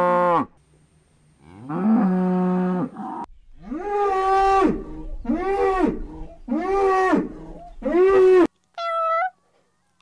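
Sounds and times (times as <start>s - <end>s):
calf mooing: 1.4s - 8.5s
cow mooing: 1.4s - 8.5s.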